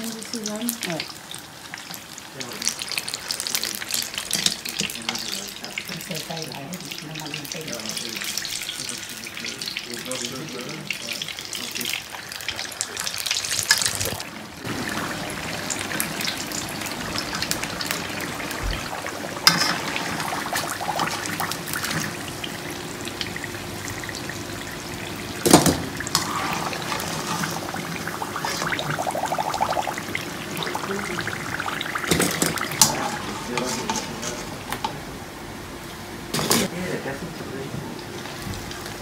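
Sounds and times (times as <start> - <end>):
food sizzling in hot oil: 0.0 - 39.0.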